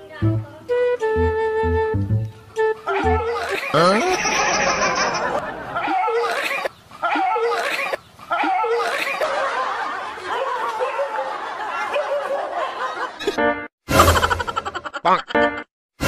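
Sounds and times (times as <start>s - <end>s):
people laughing: 2.8s - 13.4s, 14.0s - 15.6s.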